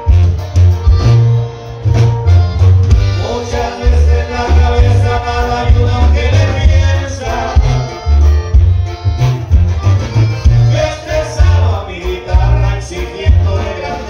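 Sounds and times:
accordion: 0:00.0 - 0:14.0
guitar: 0:00.0 - 0:14.0
tuba bass line: 0:00.0 - 0:14.0
person singing: 0:03.0 - 0:08.3, 0:10.4 - 0:14.0.

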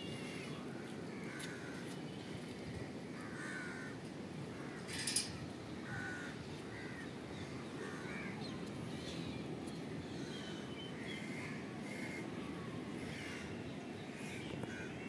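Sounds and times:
crows cawing: 0:01.1 - 0:01.9, 0:03.2 - 0:04.0, 0:04.6 - 0:05.2, 0:05.8 - 0:07.1, 0:13.0 - 0:13.6.

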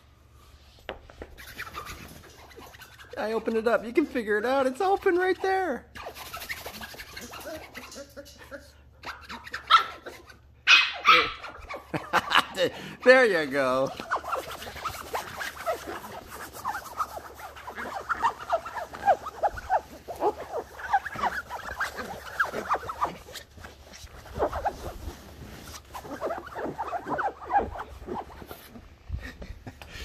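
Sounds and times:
puppy whining and yipping: 0:09.1 - 0:12.0, 0:14.0 - 0:24.9.

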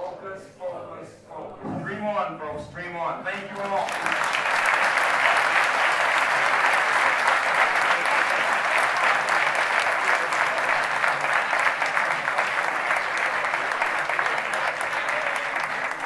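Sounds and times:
large audience applauding: 0:03.3 - 0:16.0.

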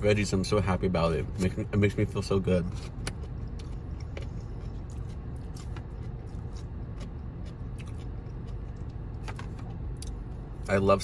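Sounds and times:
low hum: 0:00.0 - 0:11.0
person chewing food: 0:02.8 - 0:10.5.

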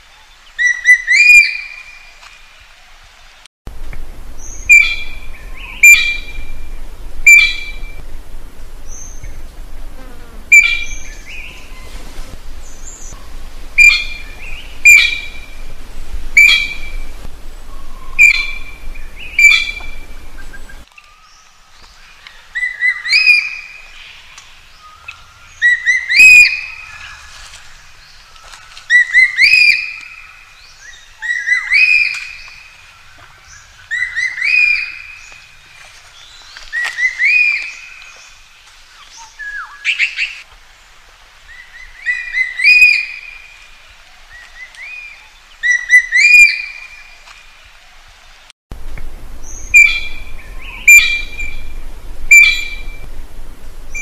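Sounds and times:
magpie calling: 0:13.8 - 0:15.4, 0:17.8 - 0:20.7, 0:49.4 - 0:51.6, 0:52.3 - 0:52.9.

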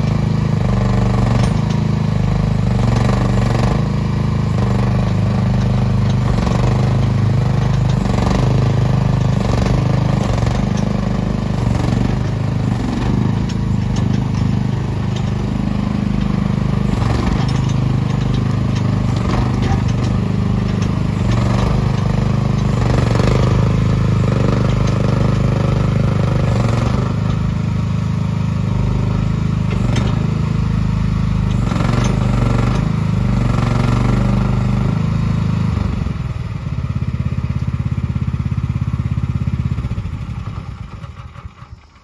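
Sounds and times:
excavator diesel engine running: 0:00.0 - 0:42.0
knocks and clatter: 0:00.2 - 0:02.0, 0:02.6 - 0:27.4, 0:29.0 - 0:30.4.

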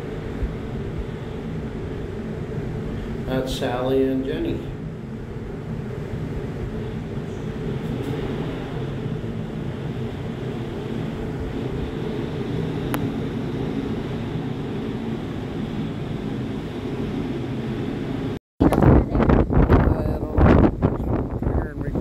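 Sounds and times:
low wind rumble on microphone: 0:00.0 - 0:22.0.

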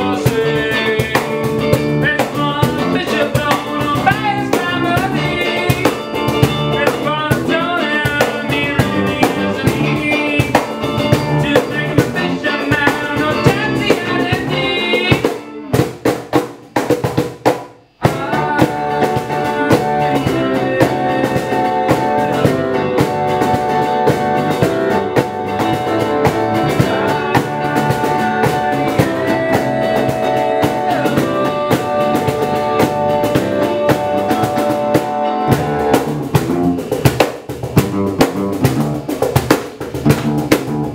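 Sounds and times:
cajon beat: 0:00.0 - 0:40.9
small band playing live: 0:00.0 - 0:40.9
stage piano: 0:18.1 - 0:37.2.

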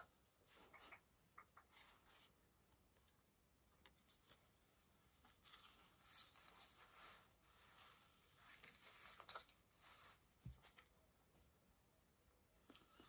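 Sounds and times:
wig fibres rustling: 0:03.8 - 0:11.0.

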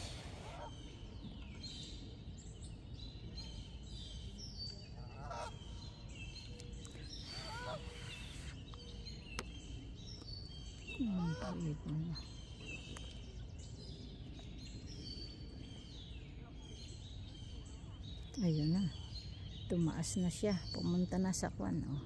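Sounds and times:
geese honking faintly: 0:00.0 - 0:01.1, 0:04.9 - 0:06.0, 0:07.3 - 0:08.6
songbirds chirping: 0:00.0 - 0:22.0.

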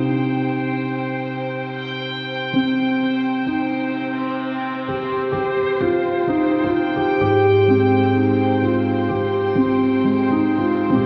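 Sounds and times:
slow instrumental music: 0:00.0 - 0:11.0.

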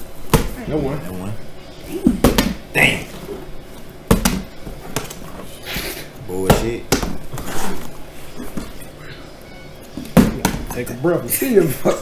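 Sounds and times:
plastic bottle thumping on wooden floor: 0:04.1 - 0:05.2, 0:06.5 - 0:07.4, 0:10.0 - 0:10.8.

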